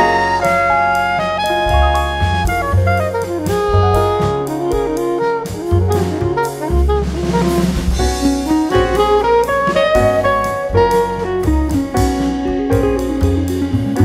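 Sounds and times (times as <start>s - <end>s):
instrumental music with beat: 0.0s - 14.0s.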